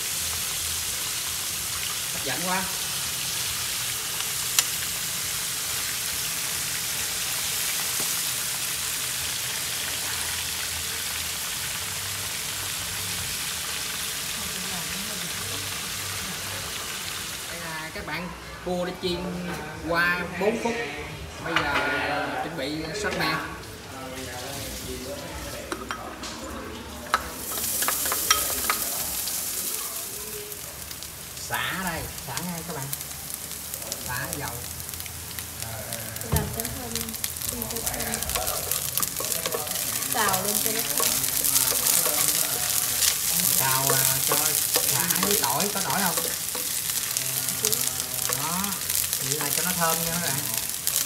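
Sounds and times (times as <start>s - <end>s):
food sizzling in hot oil: 0.0s - 19.1s, 22.7s - 51.0s
utensil clicking against pan: 27.1s - 28.9s, 38.2s - 51.0s.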